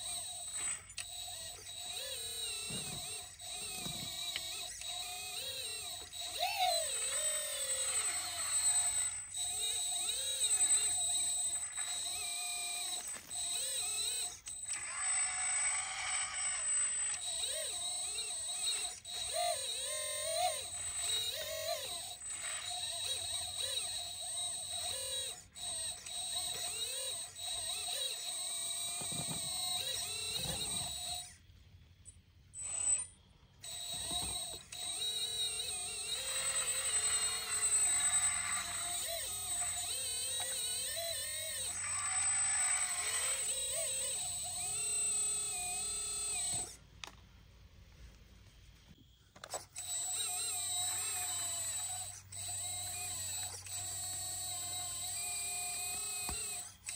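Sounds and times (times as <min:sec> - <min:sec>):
steady high whine: 0:00.0 - 0:31.4, 0:32.0 - 0:47.2
rc excavator motors whining: 0:00.0 - 0:56.9.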